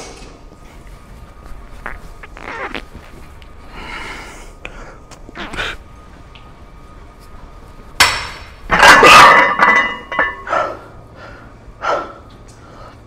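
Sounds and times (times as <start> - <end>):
person breathing hard: 3.6 - 5.8, 10.5 - 13.0
weight plates clanking: 8.0 - 10.8.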